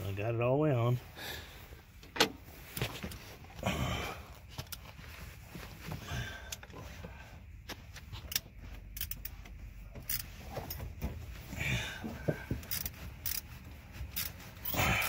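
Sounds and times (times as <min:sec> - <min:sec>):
rustling of hands and sleeves: 0:04.2 - 0:15.0
metallic clicks of wrench: 0:08.3 - 0:09.3, 0:10.0 - 0:10.8, 0:12.6 - 0:13.5.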